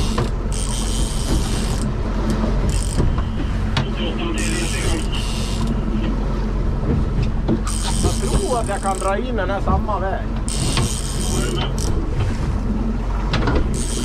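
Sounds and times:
fishing reels ratcheting: 0.0 - 1.9, 2.6 - 3.2, 4.4 - 5.8, 7.6 - 9.2, 10.4 - 12.0, 13.7 - 14.0
boat engine running: 0.0 - 14.0.

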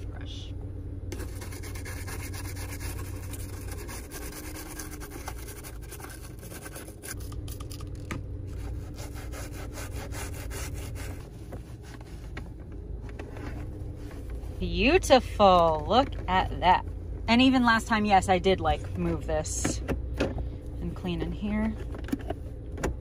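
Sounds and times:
steady low hum: 0.0 - 23.0
toothbrush scrubbing plastic: 1.2 - 7.4.

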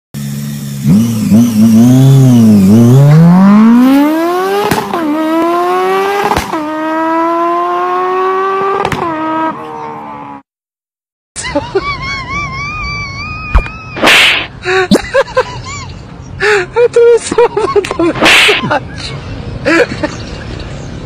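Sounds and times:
car engine accelerating: 0.2 - 10.4.

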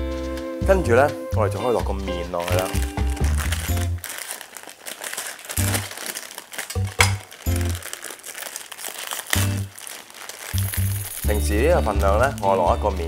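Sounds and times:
background music: 0.0 - 4.0, 6.8 - 7.9, 10.6 - 13.0
plastic wrapper crinkling: 1.6 - 13.0
sharp crack: 5.0 - 12.5.

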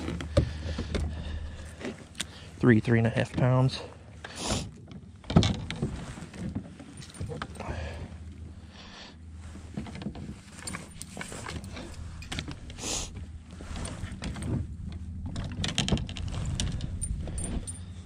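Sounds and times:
low steady hum: 0.0 - 18.0
fishing gear clicks and rattles: 4.8 - 8.2, 9.7 - 18.0.

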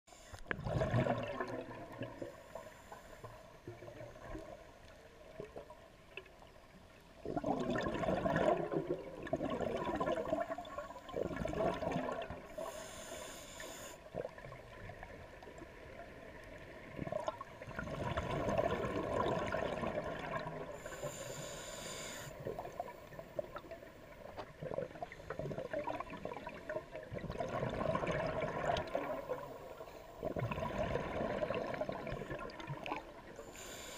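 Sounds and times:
bubbling exhaled air underwater: 0.5 - 2.6, 7.2 - 13.0, 14.0 - 33.9
hissing regulator inhales: 12.5 - 14.1, 20.8 - 22.5, 33.4 - 33.9.

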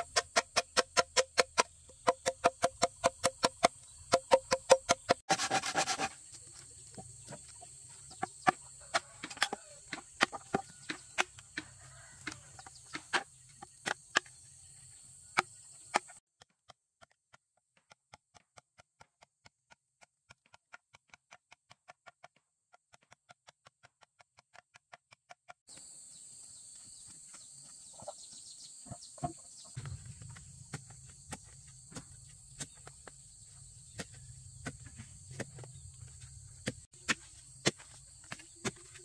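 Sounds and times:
machete chopping bamboo: 0.0 - 6.2, 8.2 - 14.4.

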